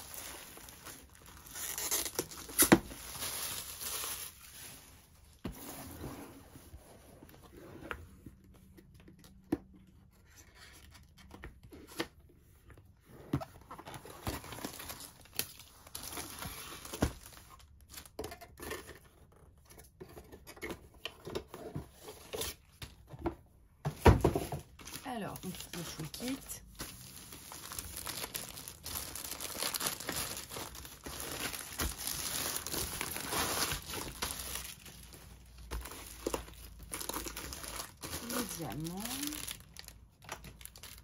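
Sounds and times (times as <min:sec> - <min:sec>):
plastic crinkling and tearing: 0:00.0 - 0:04.9, 0:13.9 - 0:18.7, 0:24.8 - 0:41.0
cardboard scraping on a table: 0:05.5 - 0:08.0.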